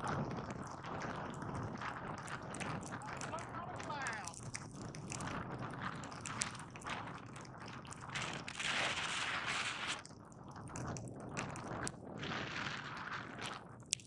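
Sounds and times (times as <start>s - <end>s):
skis sliding through powder snow: 8.1s - 10.0s.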